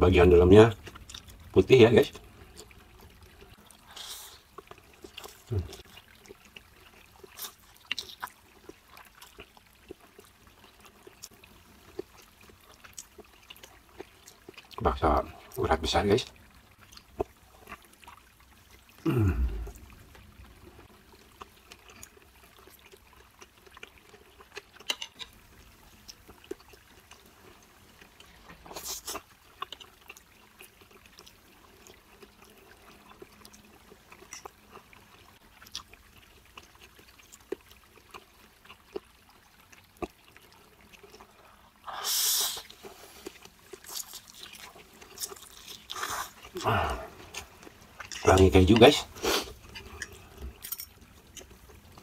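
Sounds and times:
chewing: 0.7 - 15.6, 16.2 - 52.0
noodles slurped: 26.0 - 52.0.

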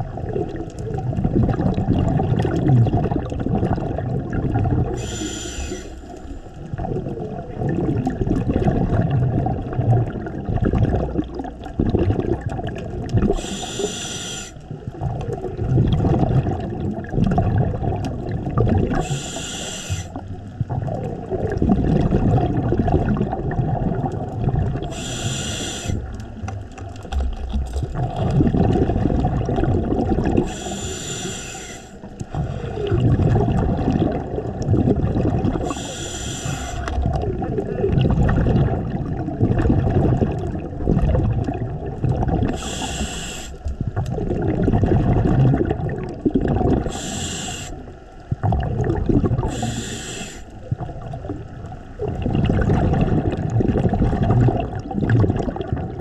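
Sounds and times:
exhaled bubbles rumbling: 0.0 - 56.0
regulator hissing inhalations: 5.0 - 6.2, 13.4 - 14.6, 19.0 - 20.2, 24.9 - 26.1, 30.4 - 32.8, 35.6 - 36.9, 42.5 - 43.6, 46.9 - 47.8, 49.5 - 50.5.

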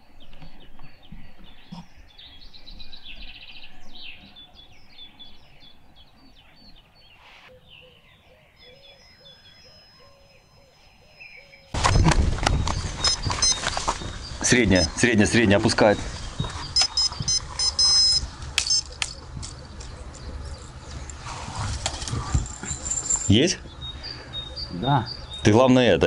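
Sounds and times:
songbirds singing: 0.0 - 26.0
rustling and knocks near microphone: 11.8 - 14.4, 15.6 - 17.8.

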